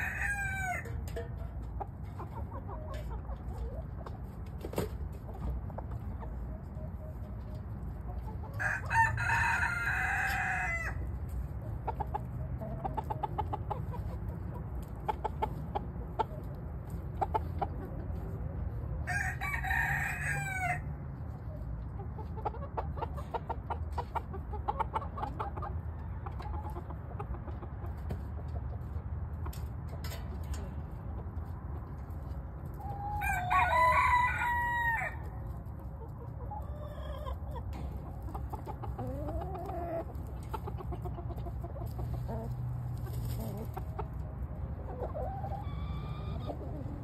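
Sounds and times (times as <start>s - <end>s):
rooster crowing: 0.0s - 1.0s, 8.6s - 11.0s, 19.0s - 20.9s, 33.0s - 35.2s
chickens clucking: 0.0s - 47.0s.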